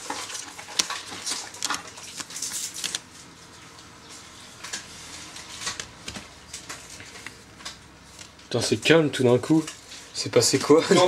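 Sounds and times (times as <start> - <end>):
cards rustling and snapping: 0.0 - 3.1, 4.6 - 8.5.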